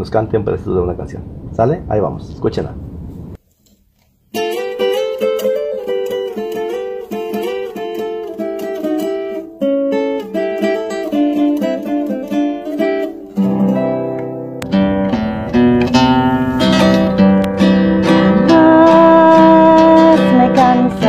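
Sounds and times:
classical guitar fingerstyle: 4.3 - 21.0.

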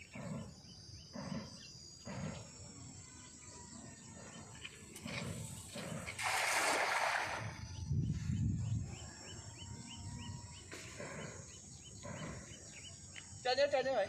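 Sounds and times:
bird chirping: 0.0 - 6.2, 7.3 - 14.0
cast net splashing on water: 6.2 - 7.6.

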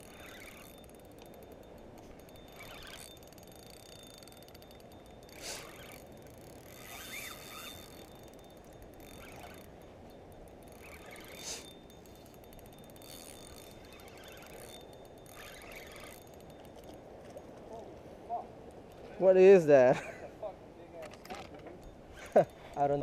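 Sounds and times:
spinning reel ticking: 0.0 - 17.8, 21.8 - 23.0.

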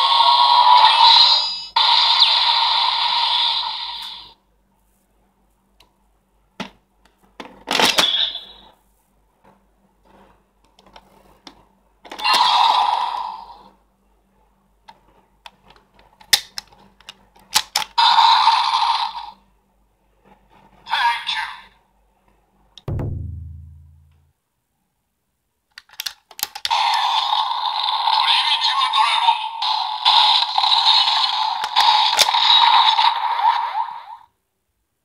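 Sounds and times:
electronic toy sound effects: 0.0 - 4.4, 26.7 - 34.2
plastic toy parts clicking: 15.5 - 18.0, 25.7 - 27.1, 30.2 - 32.7.

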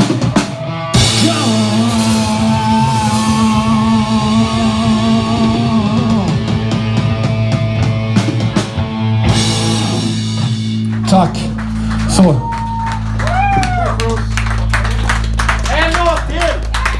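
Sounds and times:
rock band holding a chord: 0.0 - 12.1.

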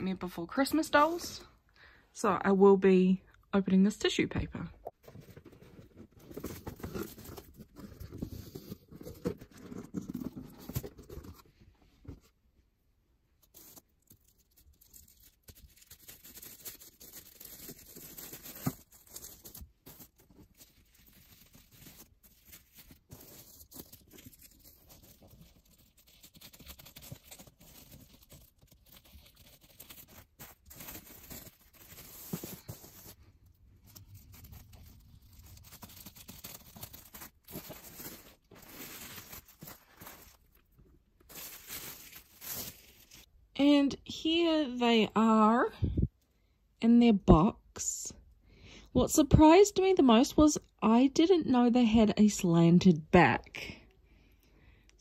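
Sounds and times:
tissue paper rustling: 5.0 - 11.5, 13.4 - 43.3.

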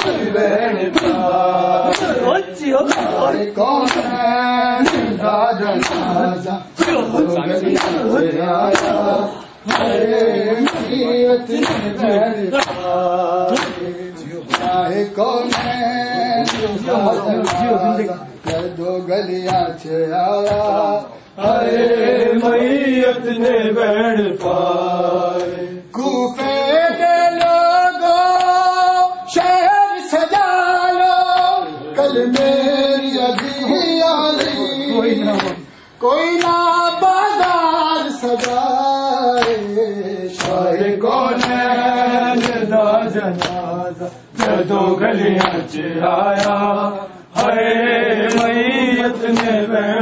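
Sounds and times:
man singing lament: 0.0 - 50.0
men chanting: 0.0 - 50.0
rhythmic chest beating: 0.0 - 50.0
hands slapping chests: 0.9 - 2.3, 2.9 - 3.2, 3.8 - 4.2, 4.8 - 5.2, 5.8 - 6.2, 6.8 - 8.1, 8.7 - 9.1, 9.7 - 10.0, 10.6 - 14.8, 16.4 - 16.8, 17.4 - 17.8, 38.2 - 38.6, 39.3 - 39.7, 40.3 - 40.7, 41.3 - 41.6, 42.3 - 42.7, 43.3 - 43.7, 44.4 - 44.7, 46.3 - 46.6, 48.2 - 48.6, 49.2 - 49.6.

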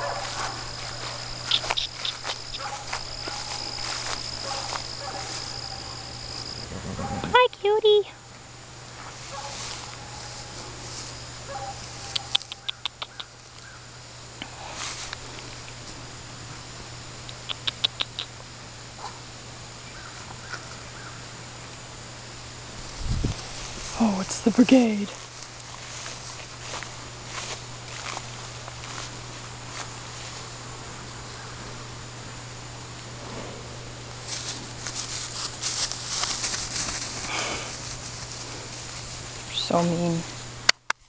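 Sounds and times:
steady low hiss: 0.0 - 41.0
steady low hum: 0.0 - 41.0
calf sucking fingers: 1.4 - 2.6, 12.1 - 13.3, 17.3 - 18.3.

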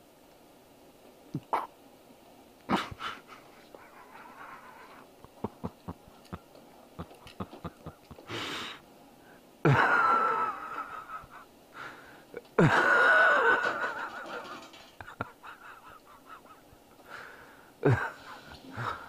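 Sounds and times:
man crying out strained: 17.8 - 19.0.

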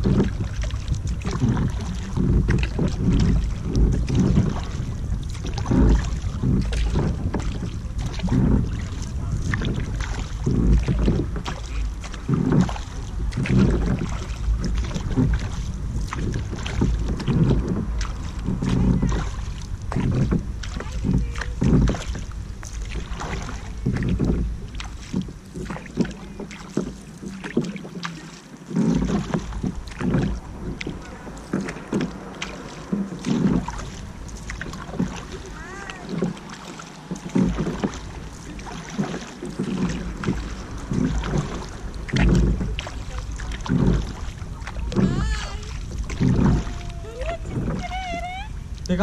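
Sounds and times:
kayak paddle strokes in water: 0.0 - 49.0
wind rumble on microphone: 0.0 - 49.0.

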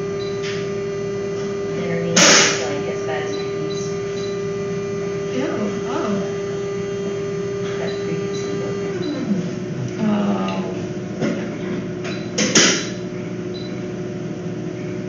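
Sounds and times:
machine hum winding down: 0.0 - 11.0.

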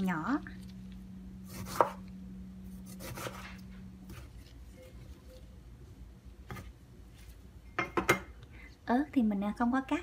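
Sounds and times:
low steady hum: 0.0 - 10.0
knife slicing lime: 1.4 - 2.1, 2.7 - 4.4.

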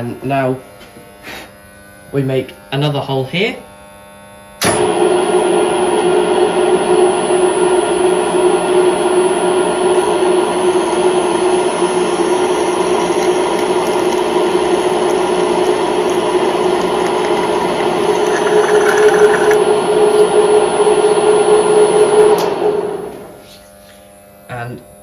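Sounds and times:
motor hum: 3.8 - 23.4
drill cutting through metal plate: 7.0 - 22.2.

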